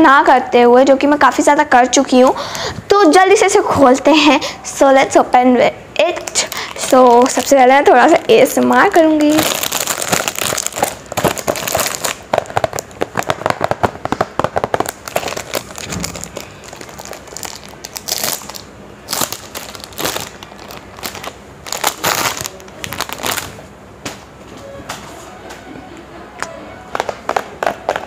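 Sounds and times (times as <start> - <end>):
cellophane wrap crinkling: 6.2 - 23.7.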